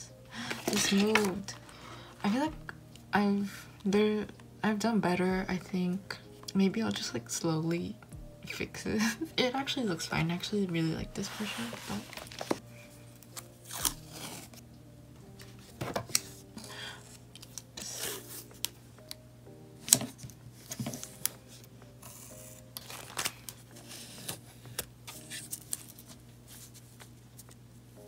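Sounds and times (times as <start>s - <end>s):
soft background music: 0.0s - 28.0s
tape tearing and crinkling: 0.4s - 1.7s, 11.4s - 12.6s, 13.2s - 14.6s, 22.0s - 27.6s.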